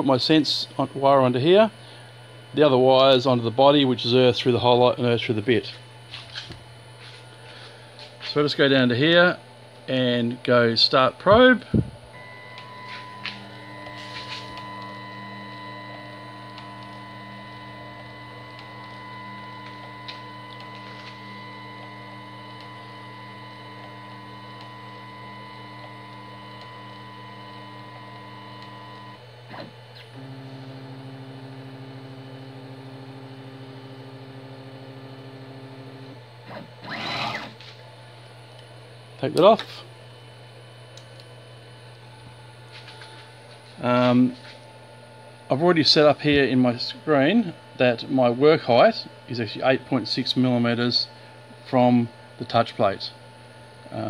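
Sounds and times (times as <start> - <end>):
stepper motor whine: 10.8 - 37.8.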